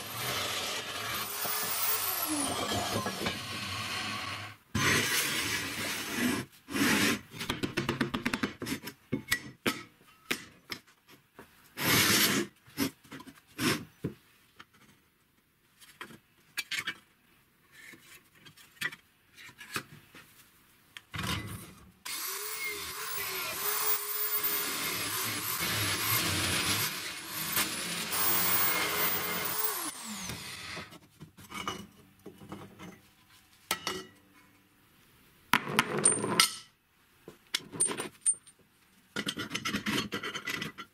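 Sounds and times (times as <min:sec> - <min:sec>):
drill press running: 0:22.1 - 0:30.8.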